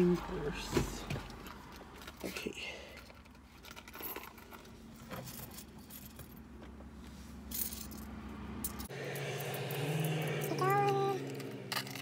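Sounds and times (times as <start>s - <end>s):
coins clinking: 7.5s - 12.0s.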